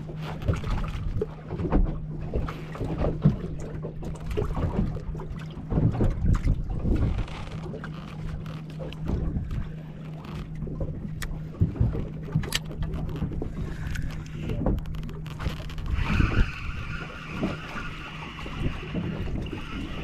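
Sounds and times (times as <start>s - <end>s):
boat engine droning: 0.0s - 20.0s
fishing reel whirring: 12.5s - 20.0s.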